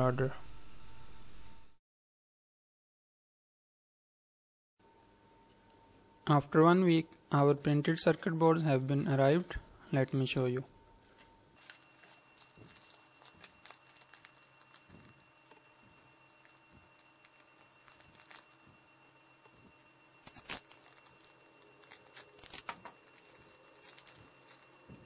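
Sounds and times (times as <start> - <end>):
paper and plastic bag rustling: 11.6 - 15.2, 16.4 - 18.7, 20.2 - 25.0.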